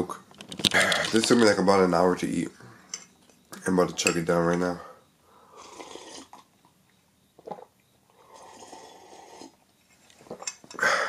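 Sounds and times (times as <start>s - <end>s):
person gulping and slurping: 5.6s - 6.6s, 7.4s - 9.6s.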